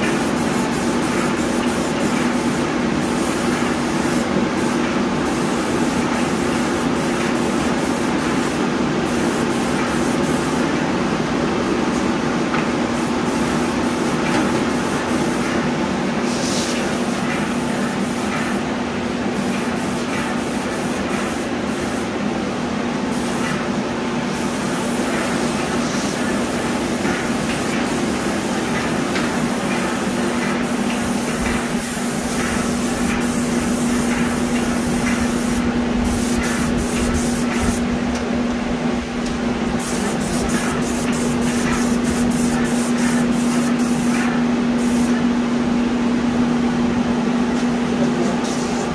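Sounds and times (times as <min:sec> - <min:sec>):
spray gun hissing: 0:00.0 - 0:10.8, 0:12.8 - 0:18.7, 0:19.4 - 0:22.1, 0:23.1 - 0:23.6, 0:24.3 - 0:37.8, 0:39.8 - 0:45.2.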